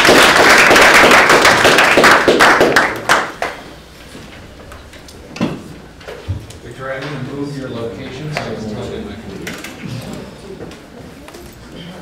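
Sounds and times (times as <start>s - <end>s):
audience applauding: 0.0s - 3.7s.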